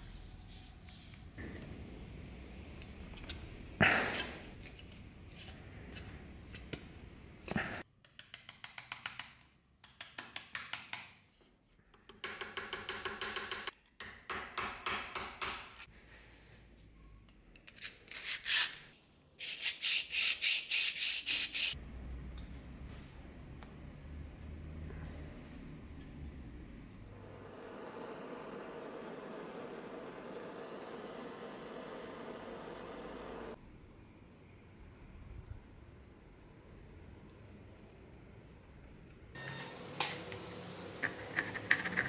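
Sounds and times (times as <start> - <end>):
sandpaper rubbing: 18.1 - 21.8.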